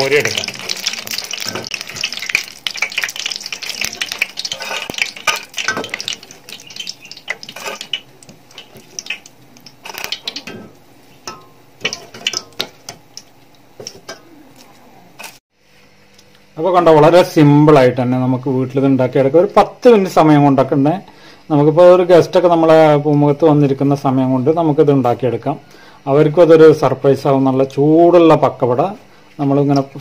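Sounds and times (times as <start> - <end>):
hot oil crackling and popping: 0.0 - 14.2
skimmer clinking against a pan: 10.0 - 13.0.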